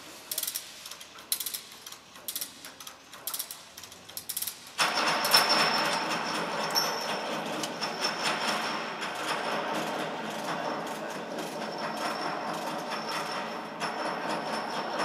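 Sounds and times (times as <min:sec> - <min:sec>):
ratchet tensioner clicking: 0:00.3 - 0:05.4.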